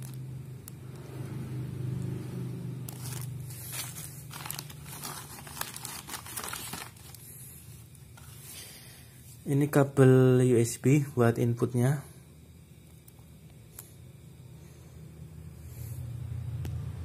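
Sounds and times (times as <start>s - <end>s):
plastic bags crinkling: 0.0s - 0.2s, 2.8s - 8.3s
steady low hum: 0.0s - 17.0s.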